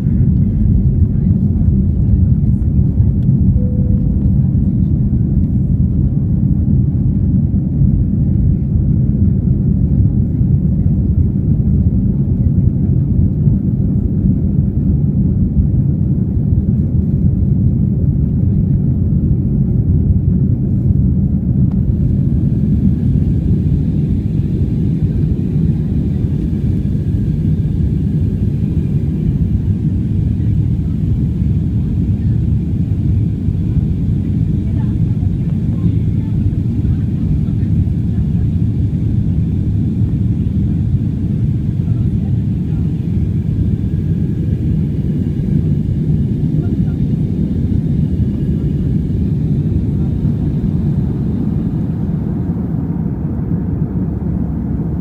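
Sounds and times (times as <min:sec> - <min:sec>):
aircraft cabin engine rumble: 0:00.0 - 0:55.0.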